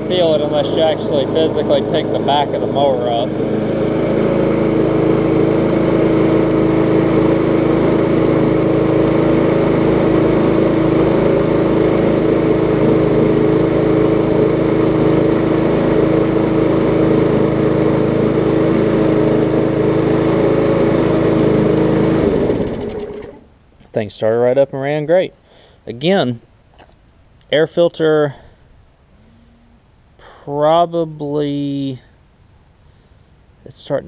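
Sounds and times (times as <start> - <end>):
lawn mower engine droning: 0.0 - 23.8.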